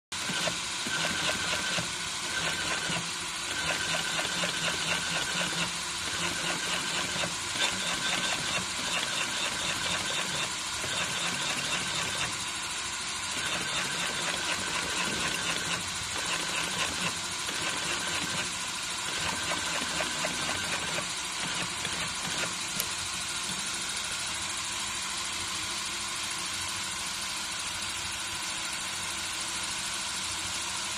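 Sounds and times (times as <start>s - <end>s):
sewing machine clattering: 0.2s - 12.4s, 13.4s - 18.5s.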